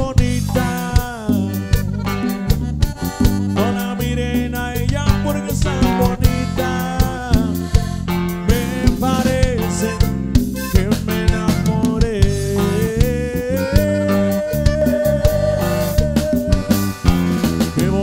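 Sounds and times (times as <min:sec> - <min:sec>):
live instrumental band music: 0:00.0 - 0:18.0
long held melodic note: 0:13.9 - 0:17.2.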